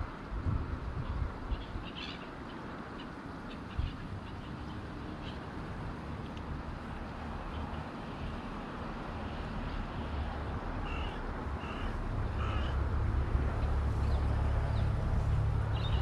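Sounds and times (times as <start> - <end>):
wind noise: 0.0 - 2.0
wind rumble on microphone: 0.0 - 16.0
bird harsh calls: 1.5 - 5.5, 10.8 - 12.8.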